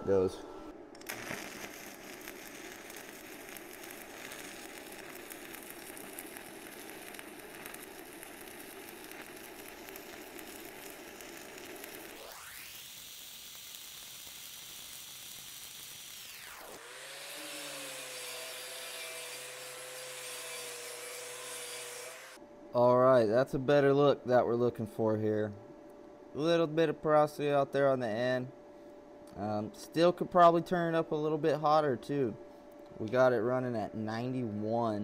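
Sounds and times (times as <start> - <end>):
welding arc crackling sizzle: 0.9 - 22.4
angle grinder wire brush whine: 1.0 - 13.8, 14.4 - 22.4.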